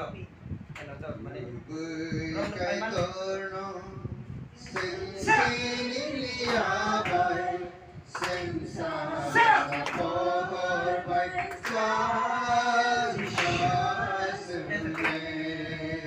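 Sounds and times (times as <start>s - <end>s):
group singing unaccompanied: 4.6s - 16.0s.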